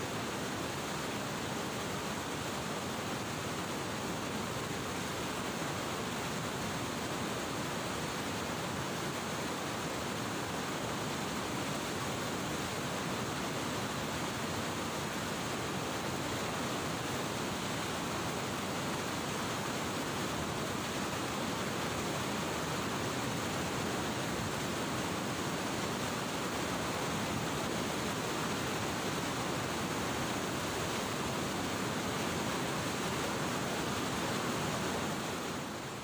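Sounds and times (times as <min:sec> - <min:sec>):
river water rushing over weir: 0:00.0 - 0:36.0.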